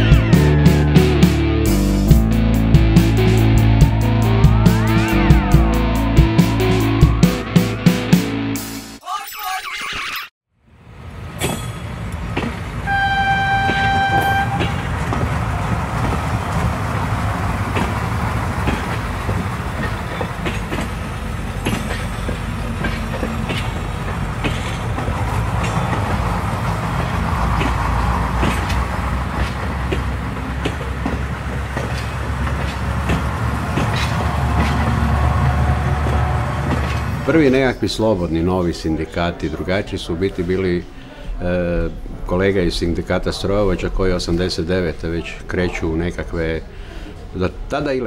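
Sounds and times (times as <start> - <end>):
train rumbling on rails: 0.0 - 8.4, 10.7 - 37.8
wheels clicking over rail joints: 11.0 - 37.5
train horn: 12.8 - 16.2, 33.8 - 37.2.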